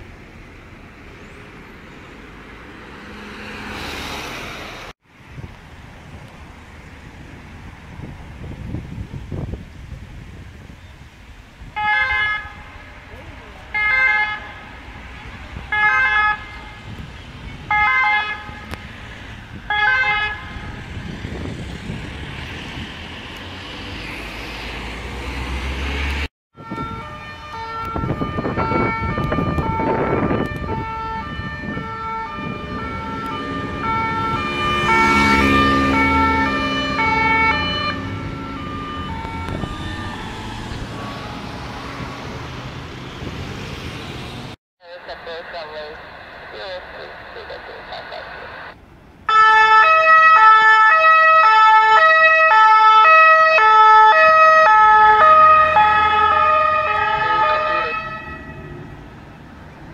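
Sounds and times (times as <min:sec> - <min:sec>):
road noise: 0:00.0 - 0:59.9
ambulance siren blasts: 0:11.8 - 0:12.8, 0:13.7 - 0:14.8, 0:15.6 - 0:18.8, 0:19.6 - 0:20.8, 0:25.9 - 0:42.2, 0:49.3 - 0:58.9
two-tone siren: 0:11.8 - 0:12.8, 0:13.7 - 0:14.6, 0:15.7 - 0:16.8, 0:17.6 - 0:18.8, 0:19.7 - 0:20.8, 0:25.9 - 0:41.7, 0:49.3 - 0:58.9.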